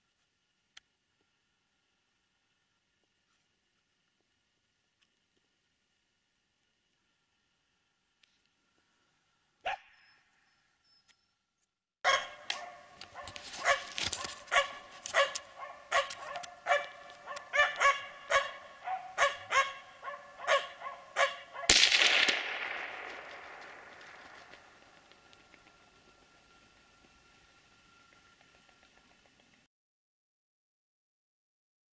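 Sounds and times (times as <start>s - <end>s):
dog barking: 9.6s - 10.2s, 12.0s - 21.8s
gunshot: 21.7s - 25.3s.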